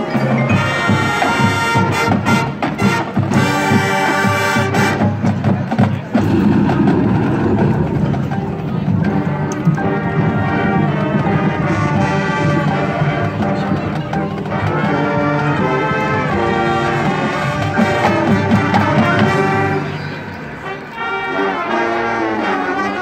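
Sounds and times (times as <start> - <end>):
marching percussion: 0.0 - 21.1
brass sustained chords: 6.2 - 23.0.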